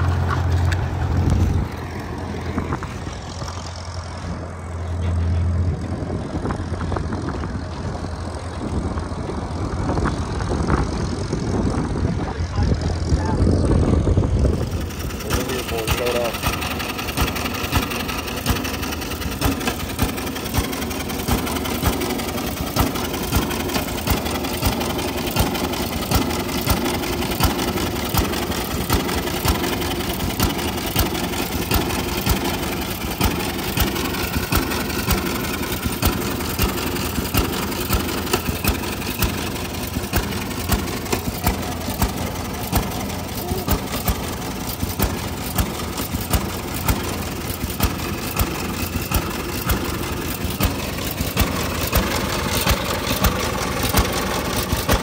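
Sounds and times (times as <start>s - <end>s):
steady engine drone: 0.0s - 55.0s
engine firing in sharp pops: 15.3s - 55.0s.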